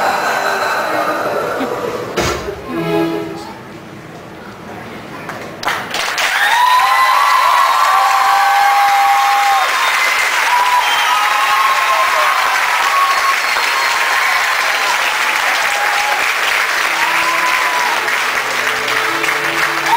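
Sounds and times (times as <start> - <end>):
low music notes: 2.4 - 3.8
audience applauding: 5.3 - 19.9.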